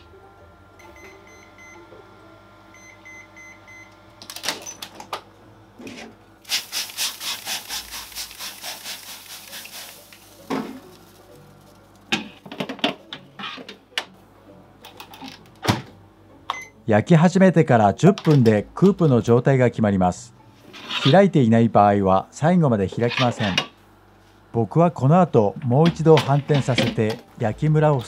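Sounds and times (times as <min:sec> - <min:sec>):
oven beeps: 0:00.8 - 0:01.9, 0:02.7 - 0:04.0
spray bottle misting: 0:06.4 - 0:11.7.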